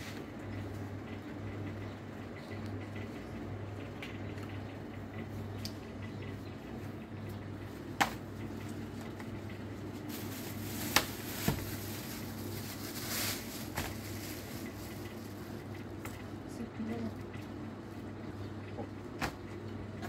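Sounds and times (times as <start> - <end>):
steady low hum: 0.0 - 20.0
plastic bags rustling: 8.0 - 15.8.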